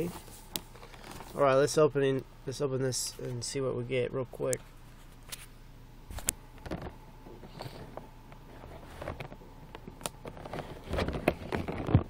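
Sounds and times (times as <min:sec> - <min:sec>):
cardboard box clicks and rustles: 0:08.7 - 0:12.0.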